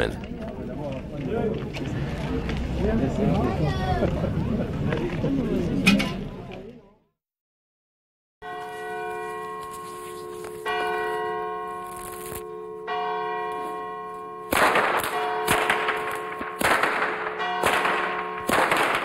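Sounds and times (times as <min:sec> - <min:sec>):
church bell tolling: 0:08.4 - 0:18.5.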